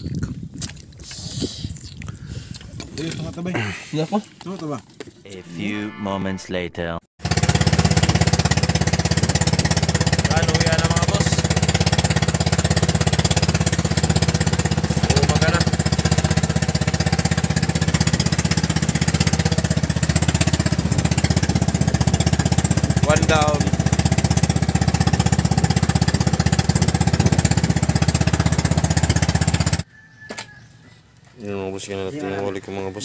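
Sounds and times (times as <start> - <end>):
small boat engine pulsing: 7.2 - 29.9.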